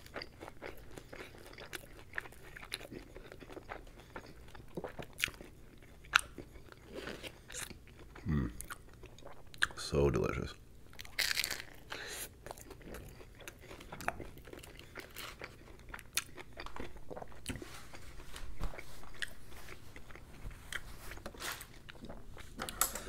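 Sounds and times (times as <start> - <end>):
chewing with crunches: 0.0 - 9.9, 10.9 - 23.0.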